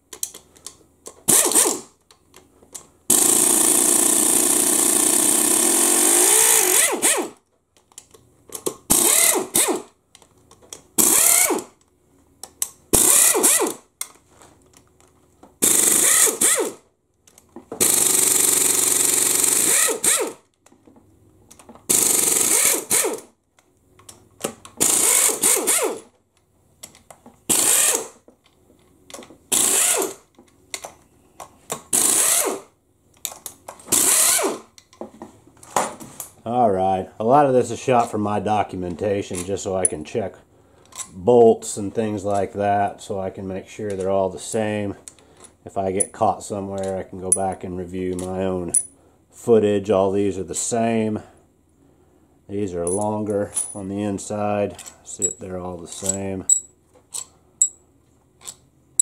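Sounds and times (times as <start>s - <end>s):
pneumatic impact wrench bursts: 1.2s - 1.9s, 3.1s - 7.4s, 8.9s - 9.9s, 11.0s - 11.8s, 12.9s - 13.9s, 15.6s - 16.8s, 17.8s - 20.4s, 21.9s - 23.3s, 24.8s - 26.1s, 27.5s - 28.2s, 29.5s - 30.3s, 31.9s - 32.7s, 33.9s - 34.8s.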